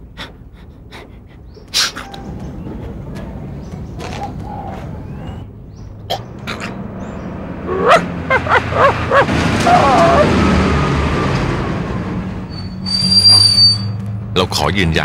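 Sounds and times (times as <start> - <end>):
garbage truck running: 2.2 - 14.4
dog barking: 7.7 - 10.3
dog whining: 7.7 - 10.3.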